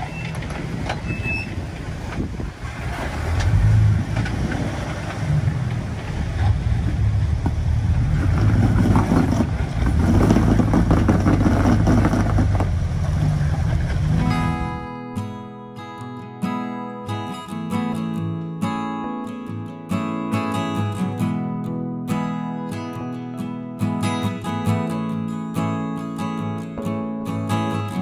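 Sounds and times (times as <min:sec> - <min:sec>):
engine revving under load: 0:01.8 - 0:14.8.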